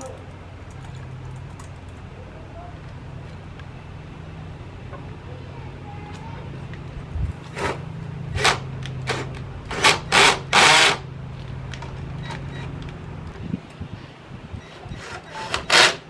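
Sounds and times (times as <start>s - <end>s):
loud harsh bursts: 7.5s - 11.1s, 14.9s - 16.0s
cordless drill driving screws: 15.0s - 16.0s.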